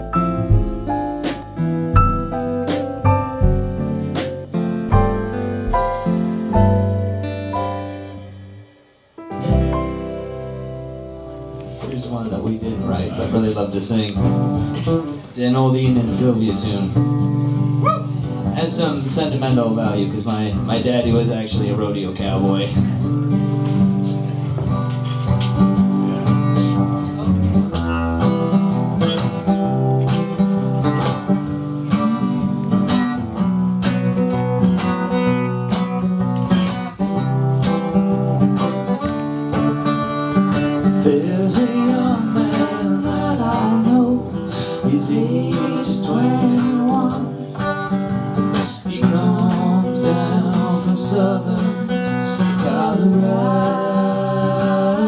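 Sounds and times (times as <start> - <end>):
strummed acoustic guitar: 0.0 - 55.0
hand drum beats: 0.1 - 7.3
people singing: 40.9 - 47.5, 48.6 - 55.0.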